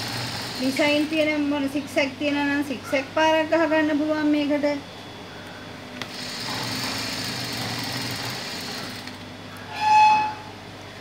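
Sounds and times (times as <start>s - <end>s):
sewing machine whirring: 0.0s - 1.4s, 6.0s - 9.2s.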